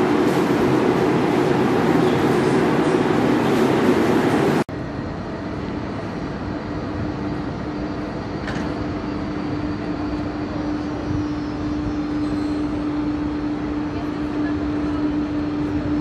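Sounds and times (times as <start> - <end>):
electric locomotive humming: 0.0 - 16.0
loud dense train rumble: 0.0 - 16.0.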